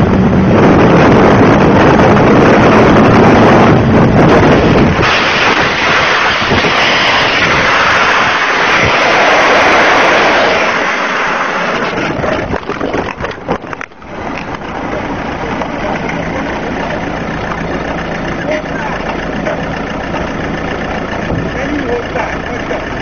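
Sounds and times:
motorcycle scraping along asphalt: 4.3s - 17.6s
knocks and scrapes: 4.4s - 16.6s
motorcycle engine running: 12.0s - 23.0s.

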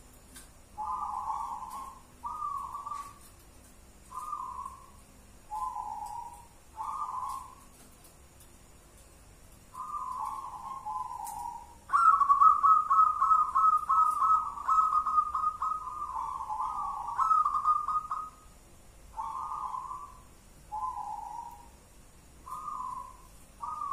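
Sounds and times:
dove cooing: 0.8s - 3.3s, 4.1s - 7.8s, 9.7s - 18.5s, 19.1s - 21.8s, 22.4s - 23.9s.

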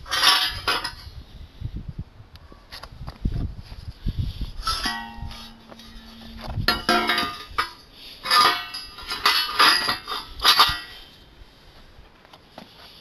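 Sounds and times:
metal frames clanking: 4.6s - 11.1s
steady metallic ringing note: 4.7s - 9.0s.

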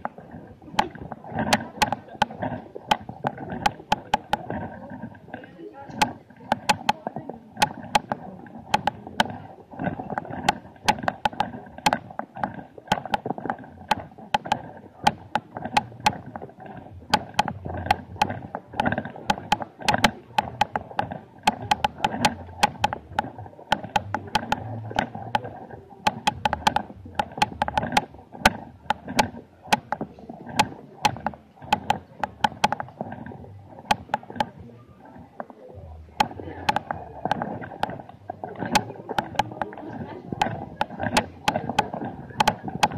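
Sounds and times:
crowd murmur: 0.0s - 10.5s, 33.3s - 42.9s
sharp clicks: 0.0s - 42.9s.

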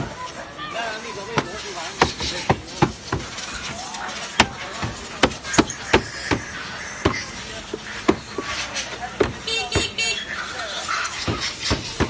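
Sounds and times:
hand knocking on door panel: 9.2s - 10.0s.

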